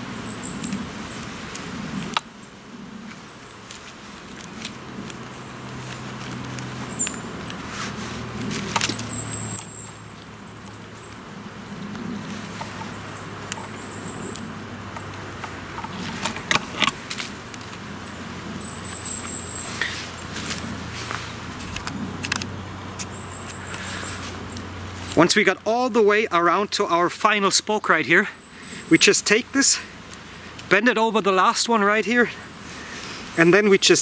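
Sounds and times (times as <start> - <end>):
steady low hum: 0.0 - 26.7
canes rustling and creaking: 3.0 - 25.8
sharp cane cracks: 3.1 - 11.2, 12.2 - 17.8.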